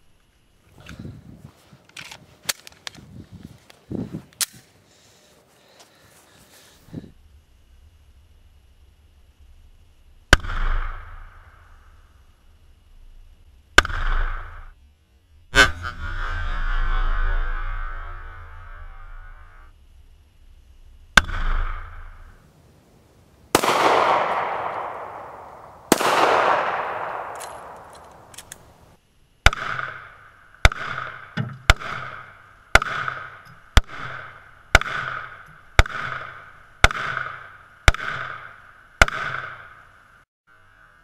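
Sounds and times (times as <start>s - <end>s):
pistol shots echoing: 23.5s - 28.8s, 29.5s - 39.8s.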